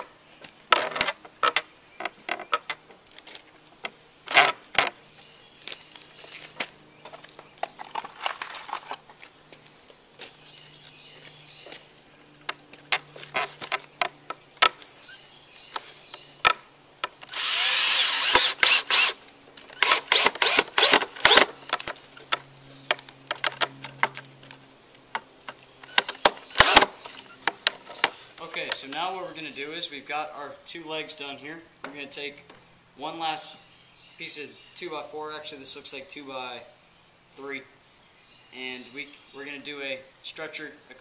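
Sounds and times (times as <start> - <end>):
cordless drill driving a screw: 17.2 - 21.5, 25.9 - 26.9.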